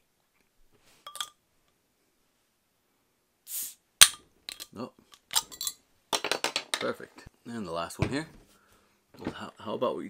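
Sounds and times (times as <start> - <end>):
soda bottle hiss: 3.5 - 3.8.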